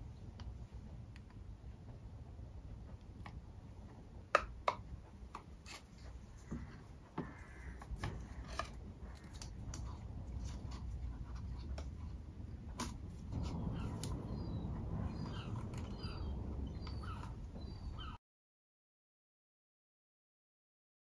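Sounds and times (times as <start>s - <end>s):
pick tool clicking and scratching: 7.8s - 14.2s.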